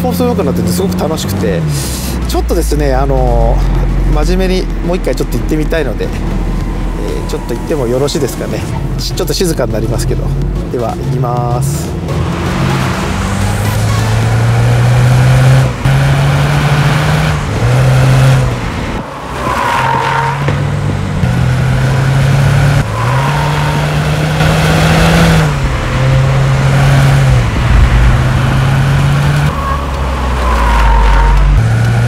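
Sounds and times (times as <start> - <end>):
car engine accelerating hard: 0.0 - 32.0
tyre squeals: 19.1 - 20.6, 22.7 - 24.4, 29.5 - 31.6.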